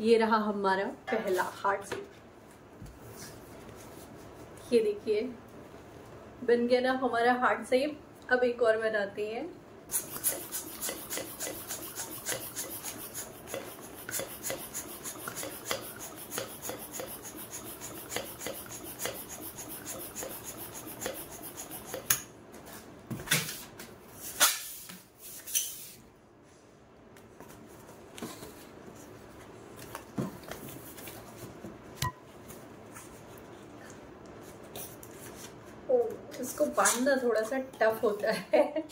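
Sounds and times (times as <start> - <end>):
hand pump strokes: 9.9 - 22.1.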